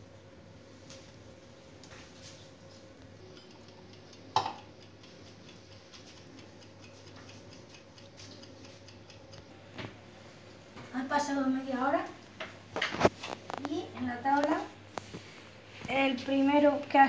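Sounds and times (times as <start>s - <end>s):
egg timer ticking: 3.3s - 9.5s.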